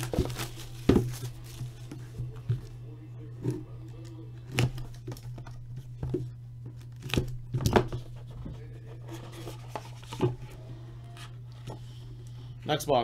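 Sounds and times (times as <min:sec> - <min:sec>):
shrink wrap crinkling and tearing: 0:00.0 - 0:01.9
steady low hum: 0:00.0 - 0:13.0.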